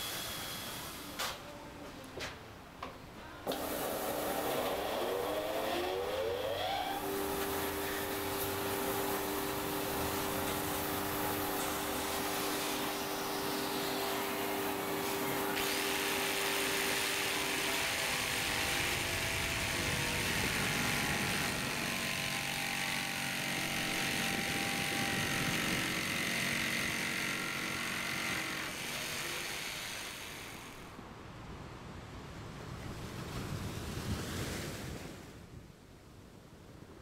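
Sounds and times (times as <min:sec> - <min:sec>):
belt sander humming: 0:03.5 - 0:30.8
jigsaw sawing through wood: 0:03.6 - 0:11.6, 0:12.2 - 0:30.8.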